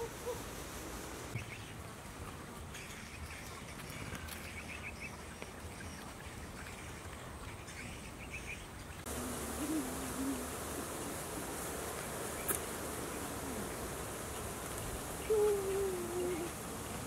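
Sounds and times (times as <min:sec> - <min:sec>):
steady hiss: 0:00.0 - 0:05.9, 0:09.0 - 0:17.0
low wavering insect buzz: 0:09.1 - 0:17.0.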